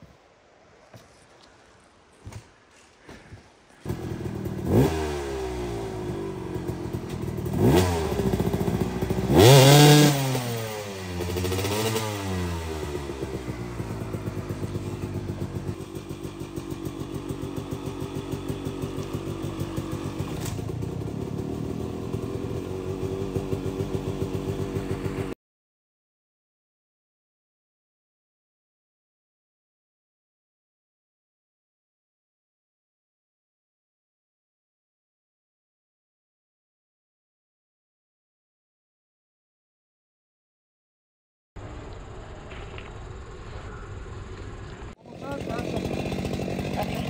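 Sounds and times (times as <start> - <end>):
dirt bike engine revving: 3.8 - 25.4, 42.5 - 47.0.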